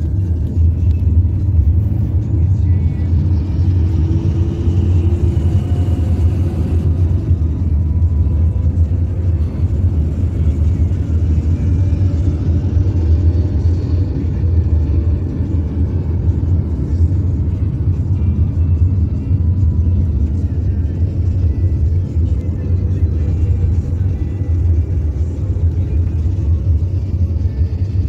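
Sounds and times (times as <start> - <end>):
car cabin engine and road noise: 0.0 - 28.0.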